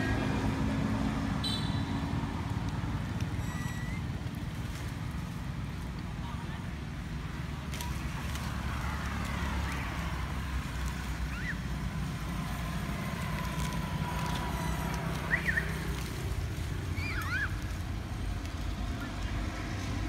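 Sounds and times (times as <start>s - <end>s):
low outdoor rumble: 0.0s - 20.0s
high chirping squeaks: 3.3s - 4.2s.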